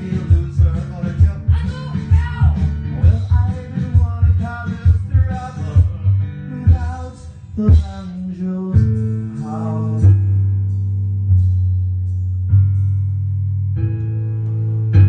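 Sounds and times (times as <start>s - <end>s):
person singing: 0.0s - 10.2s
bass: 0.0s - 15.0s
strummed guitar chords: 0.0s - 15.0s.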